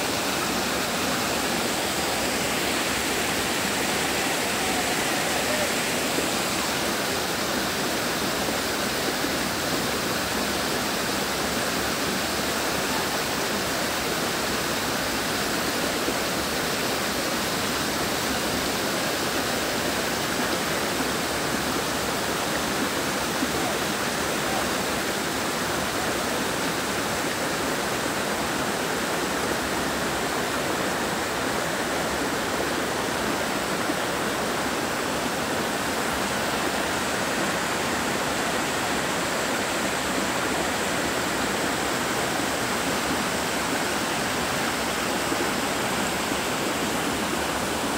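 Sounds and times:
water rushing over boulders: 0.0 - 47.9.

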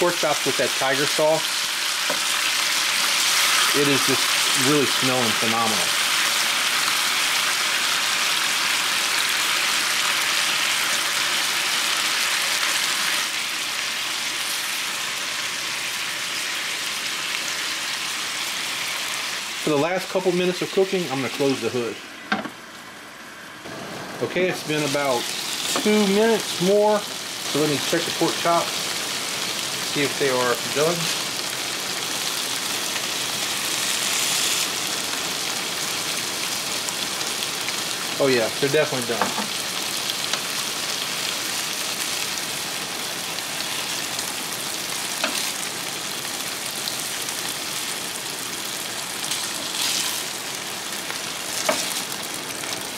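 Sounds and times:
meat sizzling on a griddle: 0.0 - 22.0, 23.7 - 52.9.

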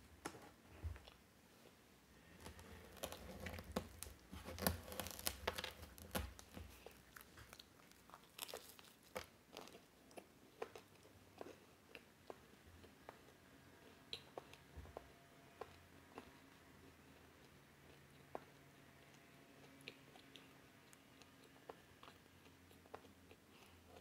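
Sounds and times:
chewing: 1.0 - 24.0
pastry crackling and tearing: 2.2 - 9.9.

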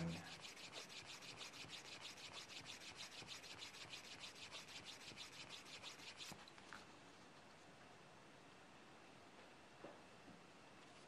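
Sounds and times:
burnisher rubbing leather edge: 0.0 - 6.4.

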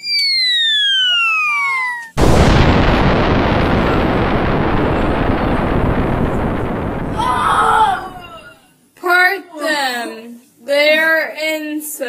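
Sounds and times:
falling bomb whistle: 0.0 - 8.5
explosion blast: 2.2 - 8.5.

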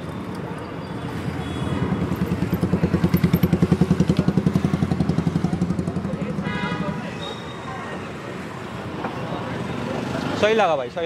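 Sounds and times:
motorcycle engine puttering: 2.1 - 6.2.

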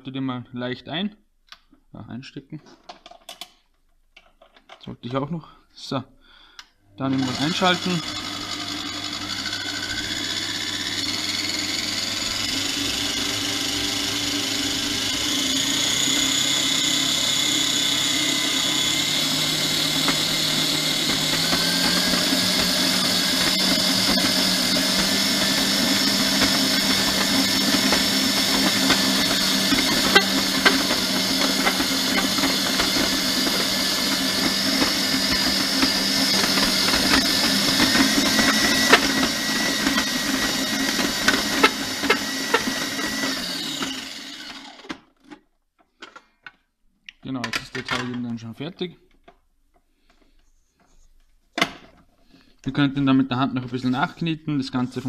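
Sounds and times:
stand mixer motor running: 7.1 - 44.9.

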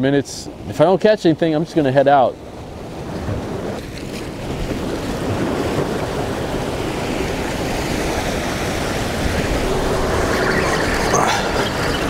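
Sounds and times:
surf washing against rocks: 0.0 - 12.0
wind on microphone: 2.4 - 12.0.

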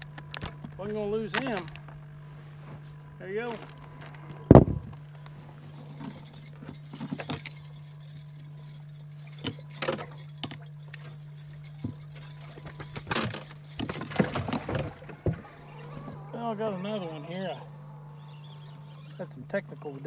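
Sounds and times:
gear clinking and knocking in boat: 0.0 - 2.1, 3.4 - 16.5
steady low hum: 0.0 - 20.0.

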